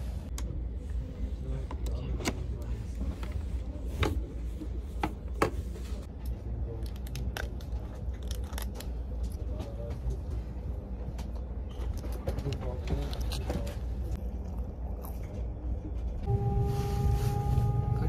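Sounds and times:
low rumble of train: 15.2s - 18.0s.

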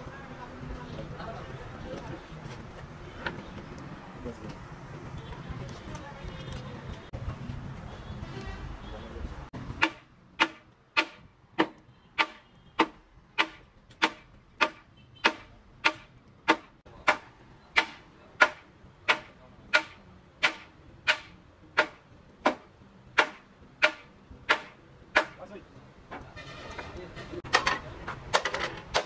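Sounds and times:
hammer striking metal: 9.8s - 25.4s.

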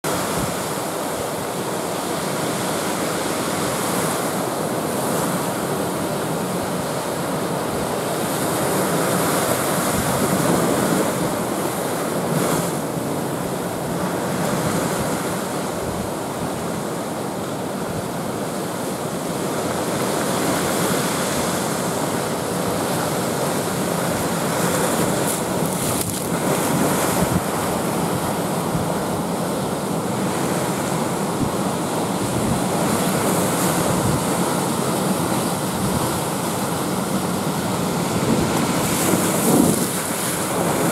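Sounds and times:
surf breaking over rocks: 19.0s - 40.9s
wind buffeting microphone: 37.6s - 40.9s.

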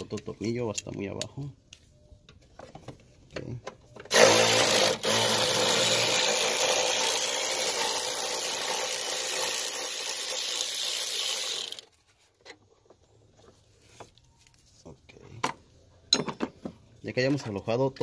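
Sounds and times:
power tool backing out a bolt: 4.0s - 11.8s.

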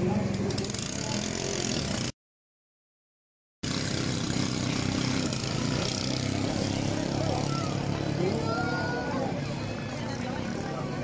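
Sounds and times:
boat engines running: 3.7s - 11.0s.

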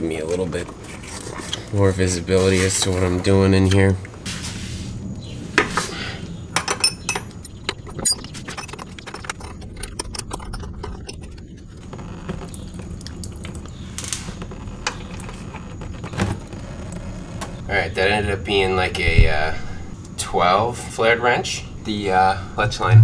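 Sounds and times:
steady low hum: 0.0s - 23.0s
wrench clinking on metal nut: 6.6s - 7.4s.

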